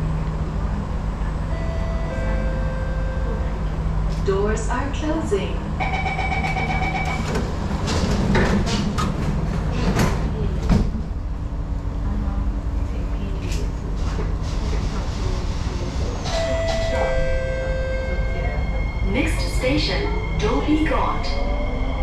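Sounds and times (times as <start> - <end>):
train low rumble: 0.0 - 22.0
train doors sliding shut: 6.9 - 11.2, 16.2 - 17.2.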